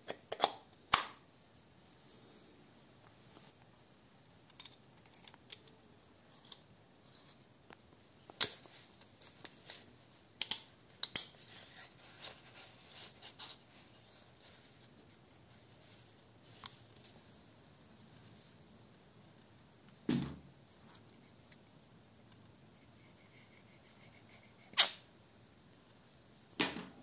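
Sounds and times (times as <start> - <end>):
metal parts clicking and clinking: 4.5 - 6.6.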